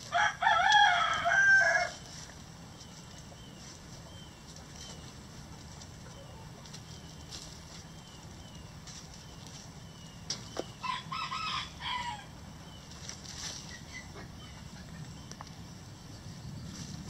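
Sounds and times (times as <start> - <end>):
rooster crowing: 0.0 - 2.0, 10.8 - 12.3
hens clucking: 0.6 - 12.2, 12.8 - 15.6.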